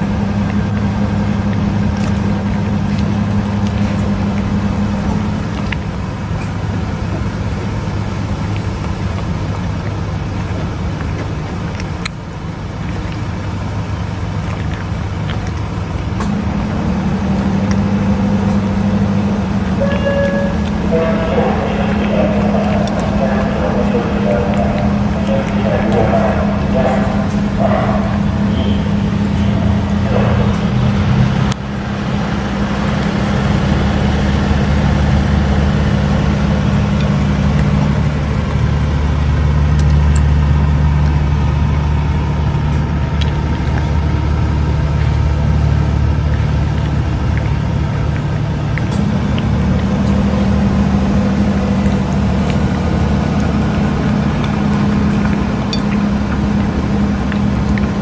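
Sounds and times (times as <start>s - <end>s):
low engine hum: 0.0s - 58.0s.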